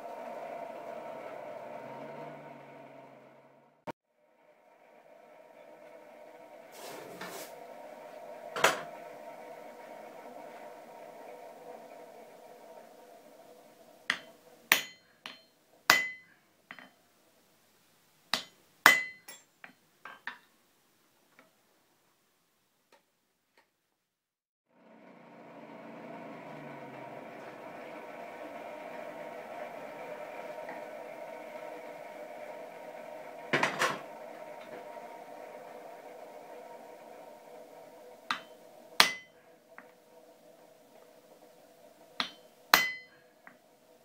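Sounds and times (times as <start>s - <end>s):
mechanical hum with tones: 0.0s - 16.8s, 24.7s - 44.0s
hammer striking steel on anvil: 14.1s - 16.9s, 18.3s - 20.2s, 38.3s - 39.4s, 42.2s - 43.2s.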